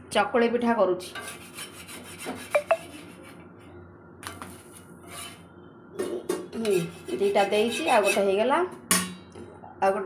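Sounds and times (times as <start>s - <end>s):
metal spatula scraping pan: 1.0s - 3.4s, 5.0s - 8.4s.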